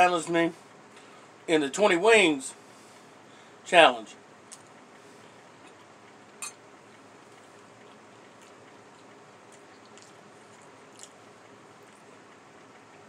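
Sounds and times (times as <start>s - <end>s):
steady low hiss: 0.0s - 13.0s
faint chewing: 5.6s - 13.0s.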